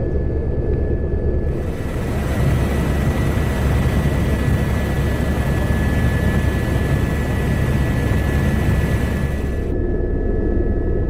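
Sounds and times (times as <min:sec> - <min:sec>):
helicopter high whine: 0:01.4 - 0:09.8
helicopter low rumble: 0:01.4 - 0:10.0.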